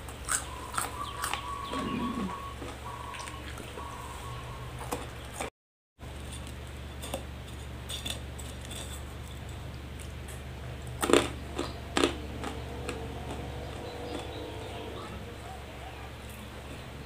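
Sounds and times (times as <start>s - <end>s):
steady low hum: 6.0s - 17.0s
dry noodles crunching: 6.3s - 14.5s.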